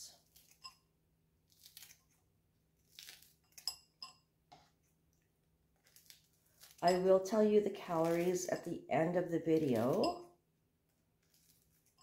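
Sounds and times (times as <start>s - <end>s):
kitchen scissors snipping: 7.9s - 8.7s, 9.5s - 10.2s.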